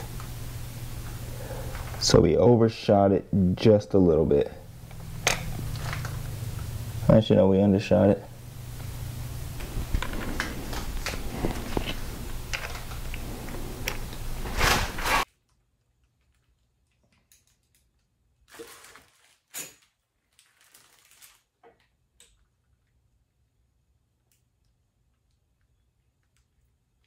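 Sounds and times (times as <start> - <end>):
low steady hum: 0.0 - 17.4.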